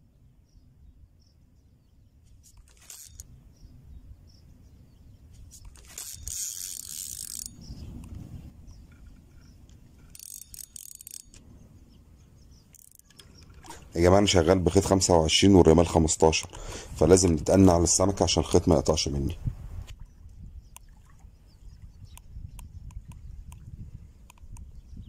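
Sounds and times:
wind rumble on microphone: 0:03.2 - 0:10.2, 0:11.3 - 0:25.0
rustling bursts: 0:05.4 - 0:07.4.

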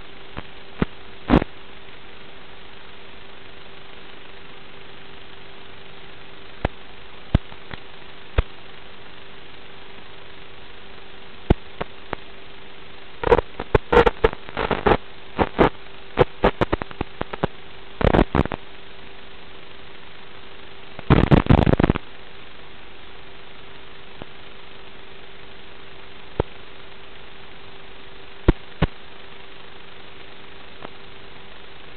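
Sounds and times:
interference crackles: 0:00.0 - 0:31.9
static hiss: 0:00.0 - 0:31.9
steady hum: 0:00.0 - 0:31.9.

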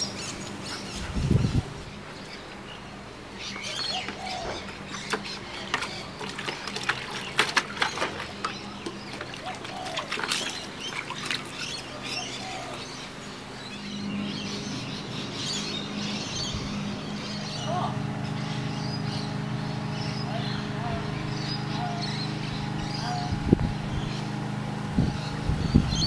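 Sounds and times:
birds chirping: 0:00.0 - 0:26.0
puppy splashing in bucket of water: 0:04.1 - 0:12.8.

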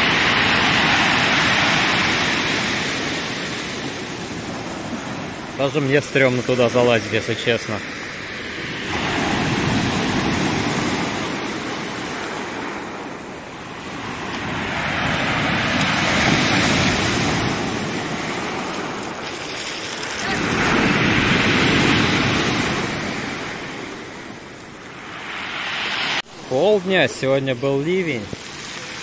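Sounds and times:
surf breaking on pebble beach: 0:00.0 - 0:29.0.

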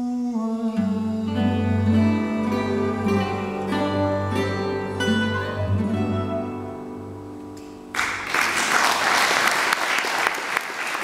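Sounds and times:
guitars and double bass chord: 0:00.9 - 0:07.9
audience applause: 0:07.9 - 0:11.0.

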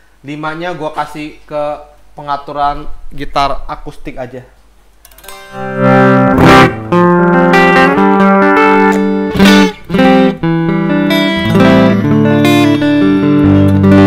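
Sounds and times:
clean electric guitar playing: 0:05.1 - 0:14.0.

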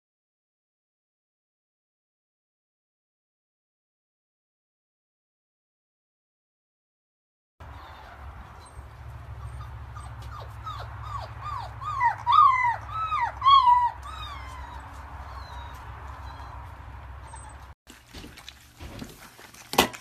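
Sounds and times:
puppy whimpering: 0:07.6 - 0:17.8.

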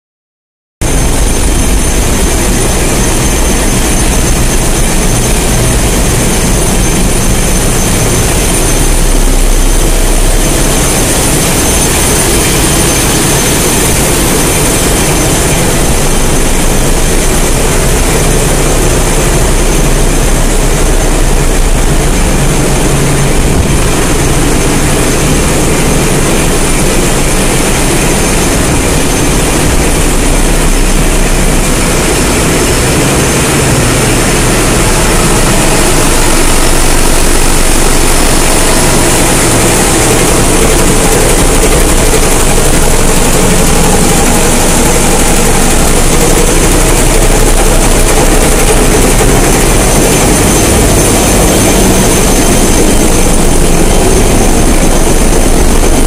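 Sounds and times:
high-pitched machinery whine: 0:00.8 - 0:56.0
machinery deep rumble: 0:00.8 - 0:56.0.

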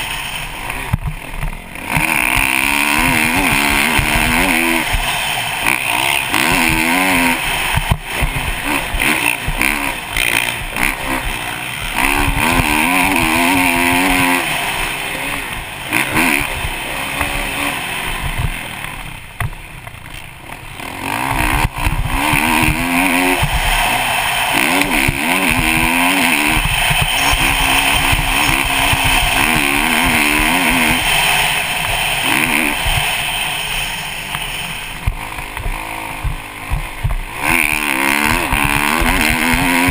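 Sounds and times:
motorcycle engine revving: 0:00.0 - 0:39.9
wind rushing: 0:21.7 - 0:37.6.

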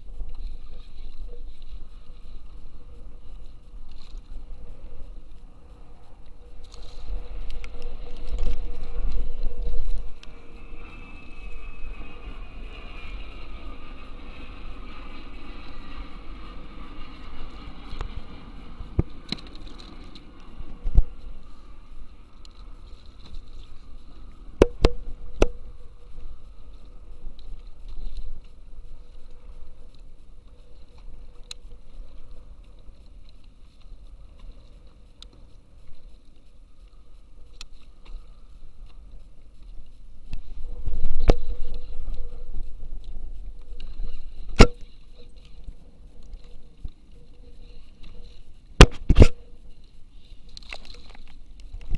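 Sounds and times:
steady low rumble: 0:00.0 - 0:50.5.

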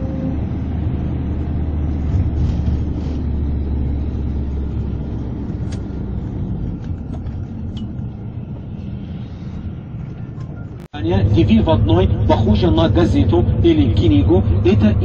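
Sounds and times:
bus engine and road noise: 0:00.0 - 0:15.0.

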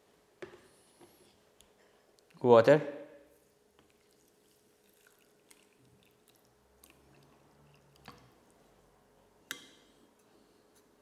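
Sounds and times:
water poured over couscous: 0:03.8 - 0:08.3.

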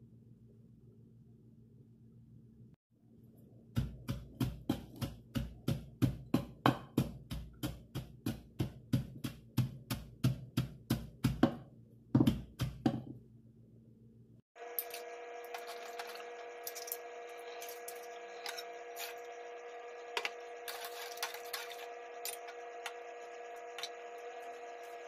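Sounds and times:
pestle pounding in clay mortar: 0:03.7 - 0:13.1.

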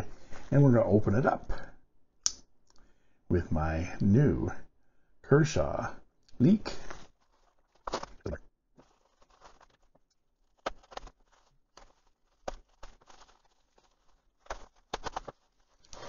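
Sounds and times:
plastic and bubble wrap crinkling: 0:06.7 - 0:16.0.

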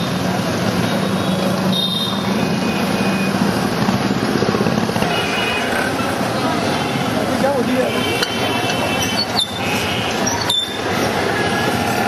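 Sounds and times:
steady engine hum: 0:00.0 - 0:07.7
motorcycles and scooters passing: 0:00.0 - 0:12.0.

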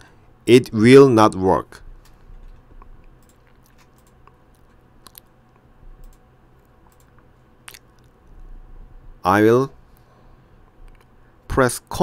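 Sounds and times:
low room hum: 0:00.0 - 0:12.0
computer mouse clicks: 0:02.0 - 0:06.2, 0:06.8 - 0:08.1.

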